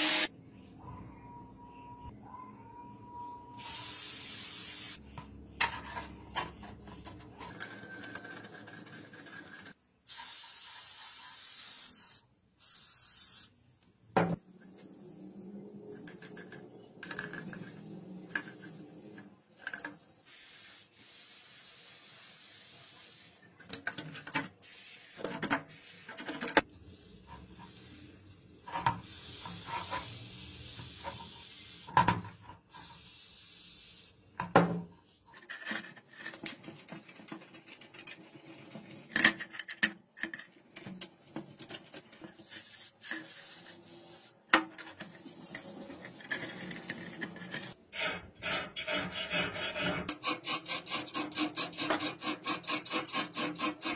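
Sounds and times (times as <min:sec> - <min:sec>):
aerosol can spraying: 0:10.1 - 0:13.6, 0:42.4 - 0:44.4
metal parts rubbing and knocking: 0:35.0 - 0:43.4, 0:44.7 - 0:53.9.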